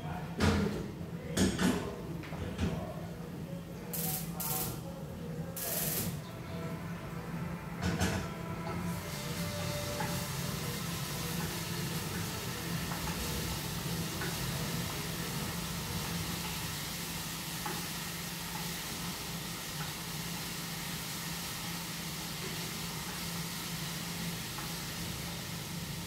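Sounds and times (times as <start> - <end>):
food sizzling in a frying pan: 5.6 - 6.2, 8.8 - 26.0.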